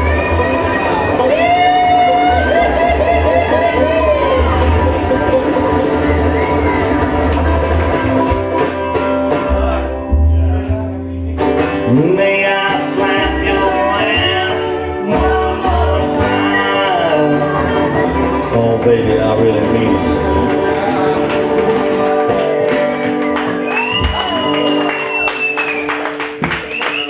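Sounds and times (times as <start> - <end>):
person singing: 0.0 - 7.0, 11.7 - 23.0
banjo: 0.0 - 24.2
washtub bass notes: 0.0 - 25.6
dobro: 0.0 - 26.5
acoustic guitar strumming: 0.0 - 26.7.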